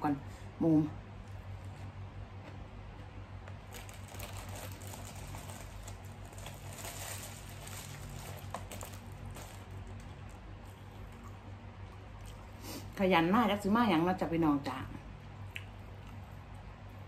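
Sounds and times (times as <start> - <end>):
person chewing food: 10.0 - 12.6, 15.4 - 17.0.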